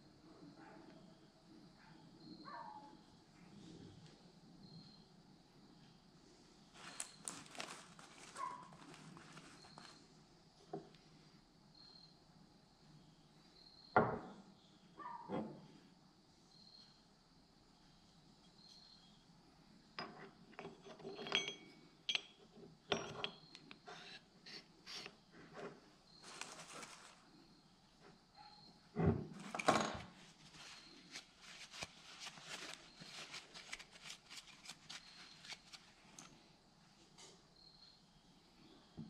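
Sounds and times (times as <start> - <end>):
metal parts clinking: 20.6 - 23.6
metallic ring: 20.8 - 23.6.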